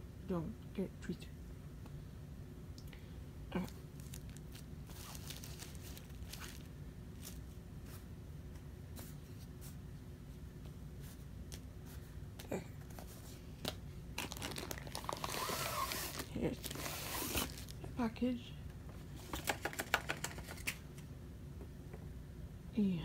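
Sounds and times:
low room hum: 0.0s - 23.0s
cardboard box rustling: 4.0s - 7.4s.

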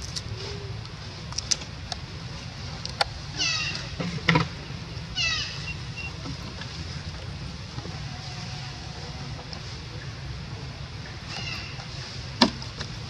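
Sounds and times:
scattered clicks: 0.0s - 2.0s.

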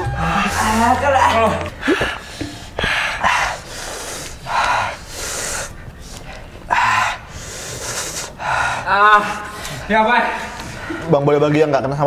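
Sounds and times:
men hissing breaths through mouth: 1.8s - 9.9s.

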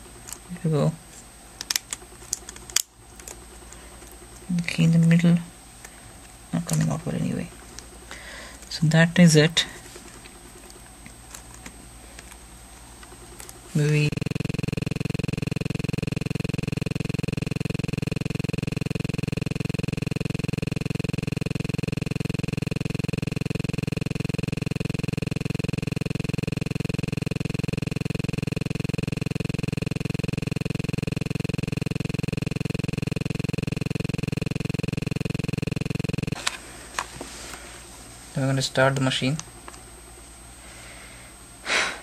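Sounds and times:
pulsing electronic buzz: 13.1s - 36.4s.

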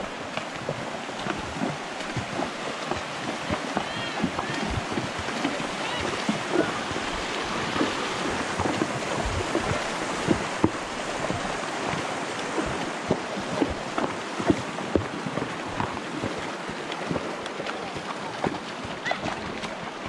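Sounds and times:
hooves splashing on stones: 0.0s - 20.0s
running water rushing: 0.0s - 20.0s.

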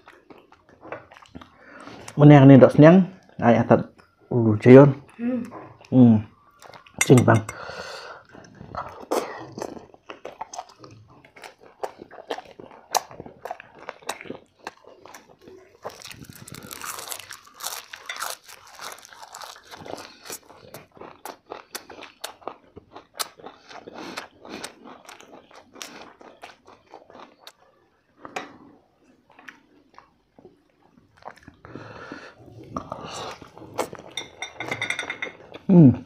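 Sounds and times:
people chewing and crunching: 0.0s - 36.0s.

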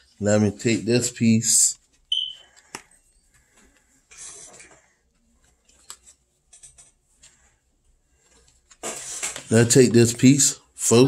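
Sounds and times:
packaging rustle and scrape: 8.7s - 9.7s.

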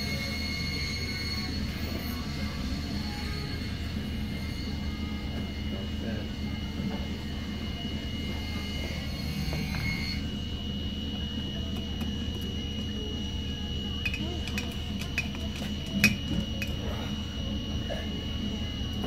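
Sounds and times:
faint high whine: 0.0s - 19.0s.

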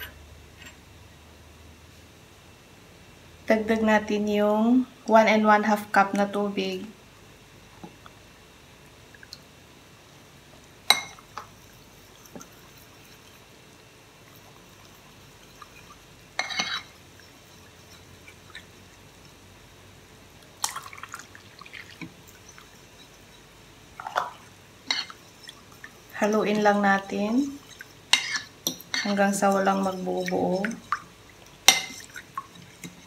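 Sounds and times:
metal fork clinking on ceramic bowl: 31.7s - 32.2s.

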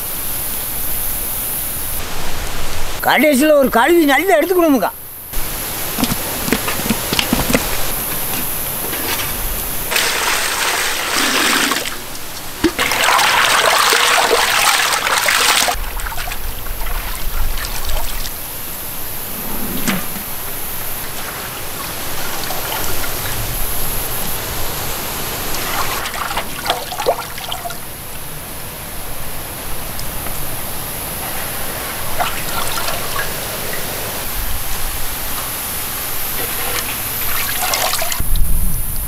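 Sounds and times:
water splashing and trickling: 5.4s - 18.5s, 20.2s - 27.9s, 31.2s - 38.5s.

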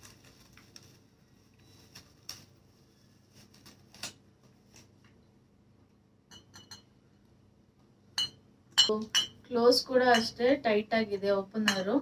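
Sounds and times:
glass bottles clinking: 8.2s - 9.4s.

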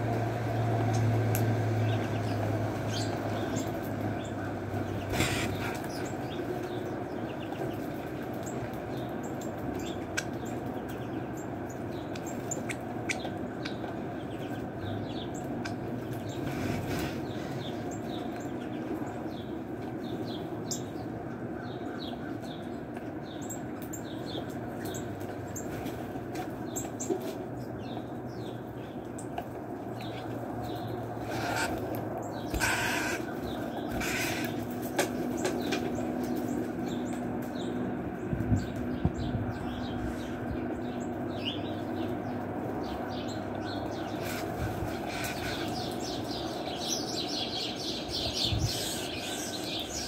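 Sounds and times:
small birds chirping: 0.0s - 50.0s
wing flutters: 4.8s - 6.8s, 30.2s - 37.2s, 44.0s - 46.4s
steady low rumble: 34.6s - 44.0s.

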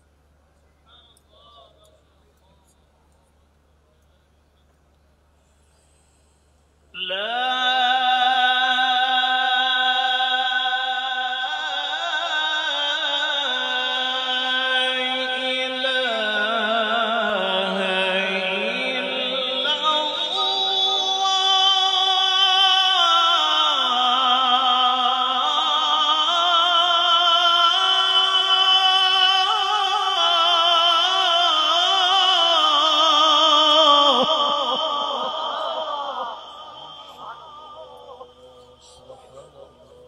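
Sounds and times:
man chanting melodically: 6.9s - 40.0s.

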